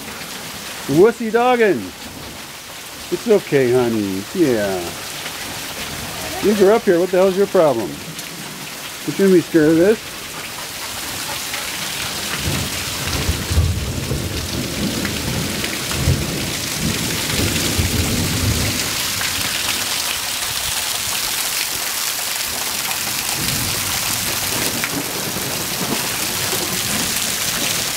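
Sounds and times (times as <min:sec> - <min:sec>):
heavy rain pouring: 0:00.0 - 0:27.9
thunder rumbling: 0:11.1 - 0:19.9, 0:23.1 - 0:27.9.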